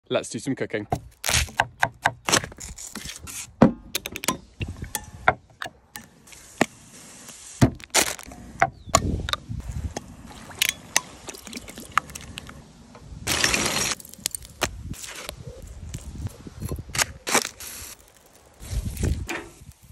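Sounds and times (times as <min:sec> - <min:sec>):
liquid pouring: 0:10.2 - 0:12.6.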